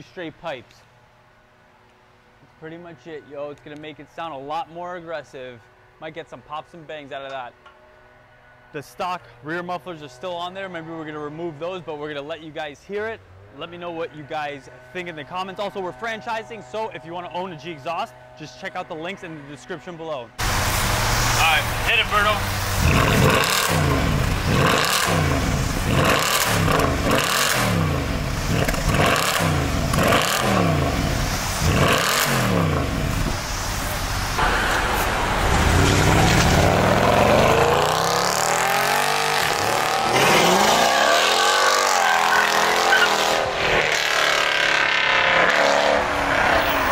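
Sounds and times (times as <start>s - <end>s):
car driving off and accelerating: 20.4s - 46.9s
car engine revving in blips: 20.4s - 46.9s.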